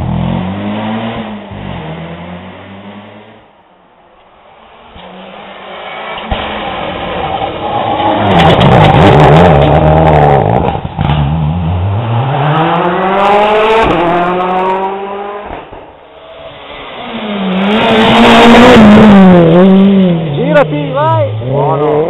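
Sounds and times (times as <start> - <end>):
rally car engine revving past: 4.9 - 20.4, 21.3 - 22.0.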